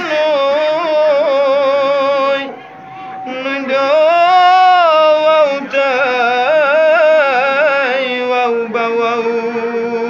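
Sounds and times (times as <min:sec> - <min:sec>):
man singing unaccompanied: 0:00.0 - 0:02.6, 0:03.2 - 0:10.0.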